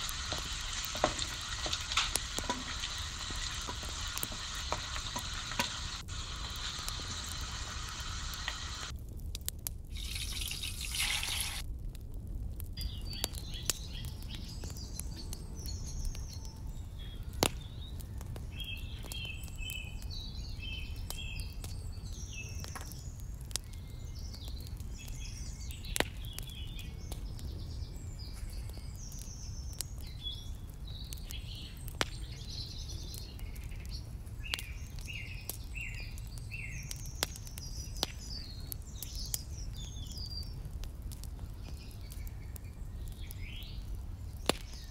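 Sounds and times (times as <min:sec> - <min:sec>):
hot oil hissing: 0:00.0 - 0:08.9, 0:09.9 - 0:11.6
small birds chirping: 0:00.0 - 0:08.9, 0:12.8 - 0:44.9.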